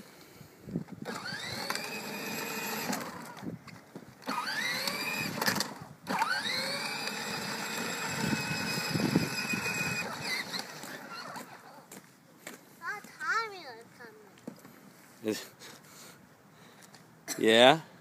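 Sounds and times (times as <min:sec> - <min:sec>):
electric motor whine: 0:01.0 - 0:03.4, 0:04.2 - 0:11.6.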